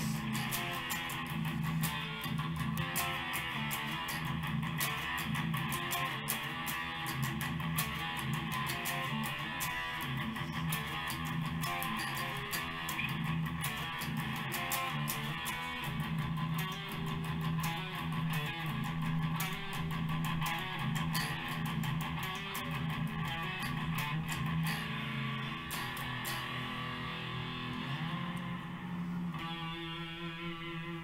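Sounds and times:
electric guitar playing: 0:00.0 - 0:31.0.

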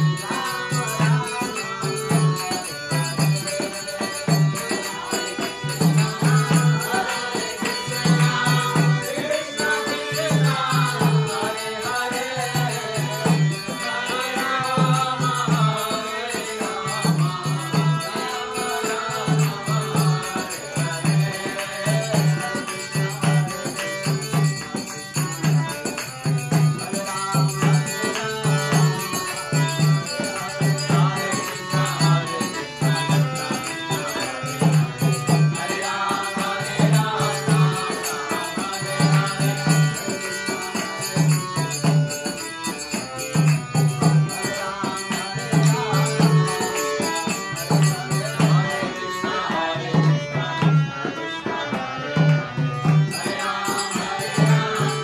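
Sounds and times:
jingling hand percussion: 0:00.0 - 0:55.0
voices singing a chant: 0:00.0 - 0:55.0.

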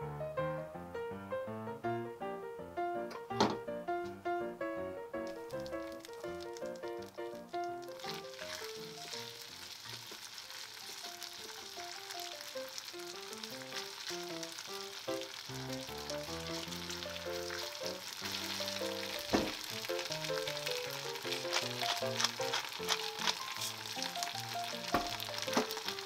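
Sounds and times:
knock: 0:03.2 - 0:03.6, 0:19.3 - 0:19.6
potato strips sizzling in butter: 0:05.2 - 0:26.0
plucked background music: 0:15.3 - 0:26.0.

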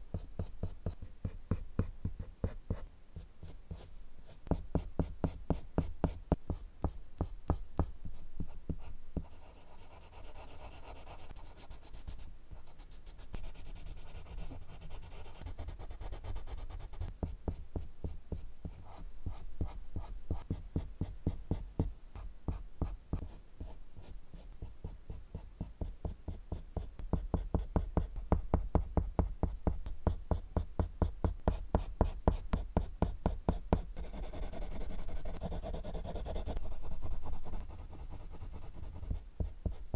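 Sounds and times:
pencil scratching on paper: 0:03.4 - 0:17.1, 0:31.4 - 0:39.8.

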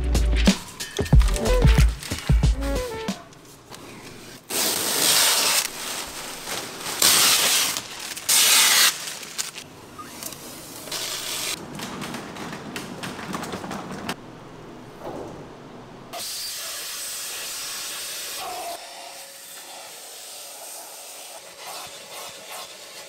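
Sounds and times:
plastic film rustling: 0:00.8 - 0:14.2
plastic film crackling tears: 0:01.0 - 0:02.6, 0:04.5 - 0:10.3.

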